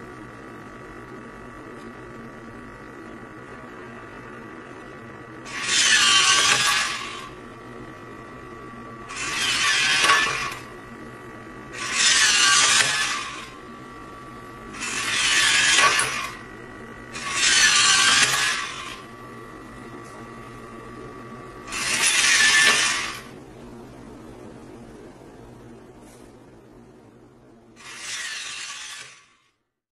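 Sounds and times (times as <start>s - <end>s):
faint high whine: 0.0s - 29.6s
servo motors whirring: 5.5s - 7.4s, 9.1s - 10.7s, 11.7s - 13.6s, 14.7s - 16.5s, 17.1s - 19.1s, 21.6s - 23.3s, 27.8s - 29.4s.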